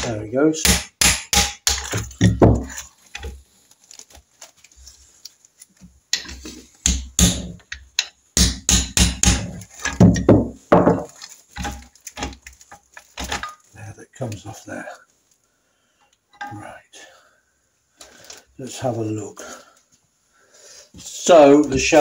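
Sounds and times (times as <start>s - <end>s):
mallet handle tapping metal: 6.9s - 10.3s
parts clunking on bench: 16.3s - 16.6s.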